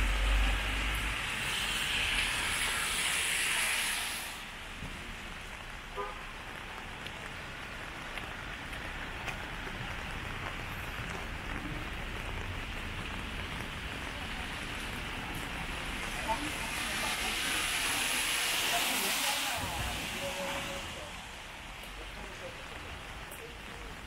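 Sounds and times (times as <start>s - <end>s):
steady rainfall: 0.0s - 24.0s
vehicle passing on wet street: 0.0s - 24.0s
raindrop ticks: 4.8s - 16.8s, 21.3s - 24.0s.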